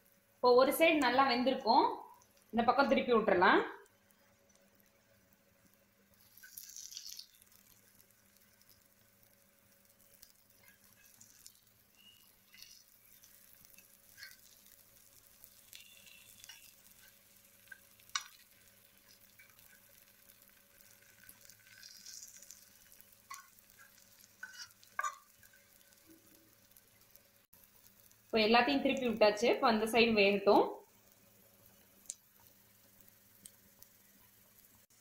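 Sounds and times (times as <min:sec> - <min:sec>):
faint frying sizzle: 0:00.0 - 0:35.0
metal spatula scraping and tapping pan: 0:12.4 - 0:14.8, 0:15.5 - 0:18.6, 0:23.3 - 0:25.9.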